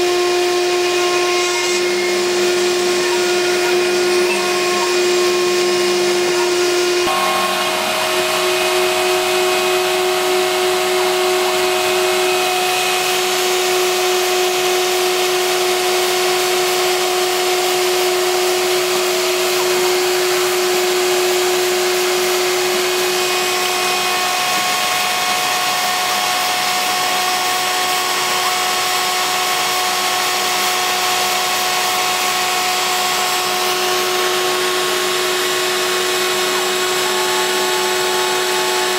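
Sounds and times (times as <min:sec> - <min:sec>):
bit milling plywood: 0:00.0 - 0:38.9
router spindle motor whine: 0:00.0 - 0:38.9.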